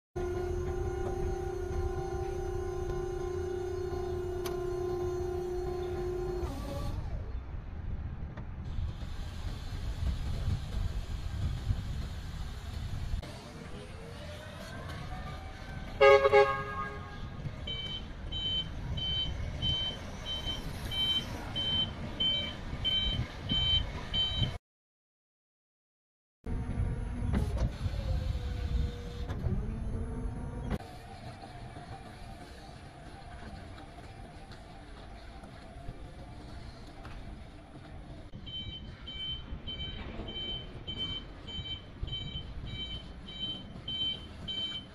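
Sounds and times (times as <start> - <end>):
forklift horn toot: 0.2 - 6.9, 16.0 - 18.6
forklift driving rumble: 0.2 - 24.6, 26.5 - 31.1, 38.2 - 44.9
high warning beeps: 17.7 - 24.6, 38.4 - 44.9.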